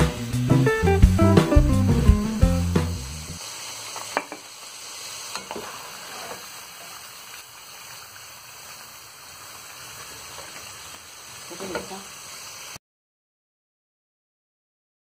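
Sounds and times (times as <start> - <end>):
background music: 0.0 - 3.4
fries sizzling in hot oil: 0.0 - 12.8.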